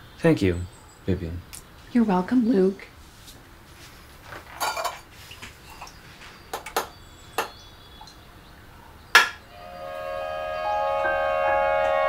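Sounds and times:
dishes and cutlery clinking: 4.4s - 7.5s.

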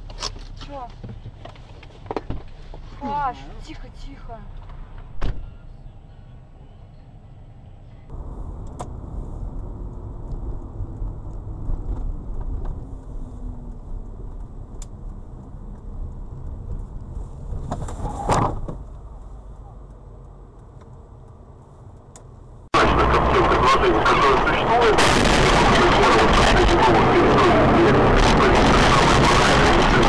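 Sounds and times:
car road and engine rumble: 0.0s - 30.0s
sharp thump: 5.2s - 5.5s.

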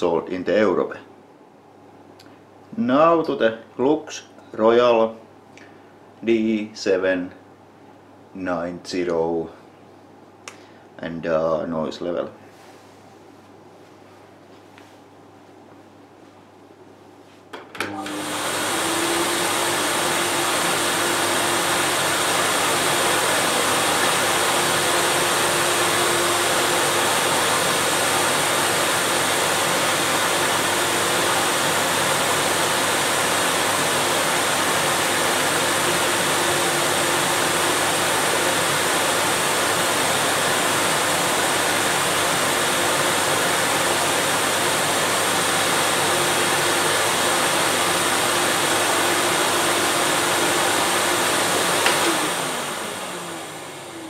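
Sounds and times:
vacuum cleaner running: 17.5s - 54.0s
vacuum cleaner switch click: 51.8s - 52.2s.

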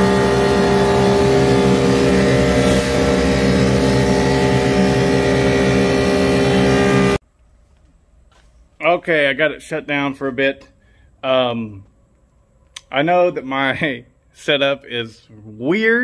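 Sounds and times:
planer machine droning: 0.0s - 7.2s.

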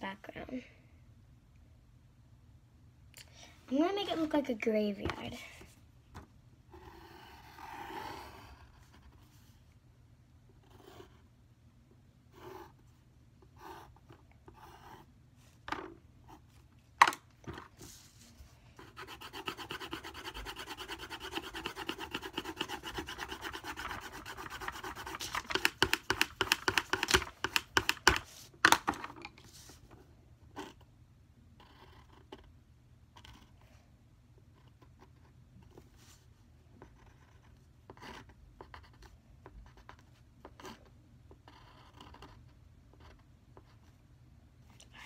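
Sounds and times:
pencil drawing on paper: 6.7s - 9.6s, 10.6s - 11.3s, 12.3s - 15.1s, 17.8s - 28.5s, 31.6s - 32.5s, 34.5s - 43.9s.

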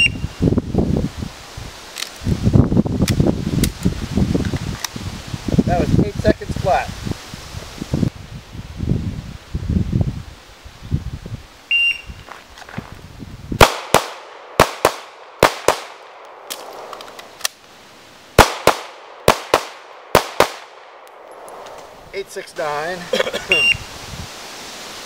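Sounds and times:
shot timer beep: 11.7s - 12.1s, 23.5s - 23.8s
pistol shots in quick pairs: 13.6s - 16.9s, 18.4s - 21.0s.

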